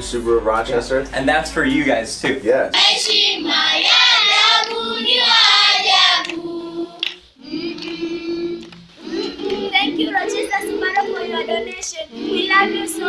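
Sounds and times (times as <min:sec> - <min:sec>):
children singing together: 0:02.8 - 0:13.0.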